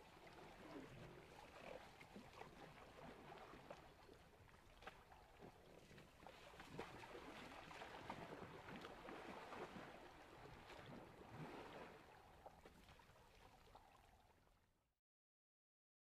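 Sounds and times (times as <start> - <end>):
elephants splashing in water: 4.7 - 13.5.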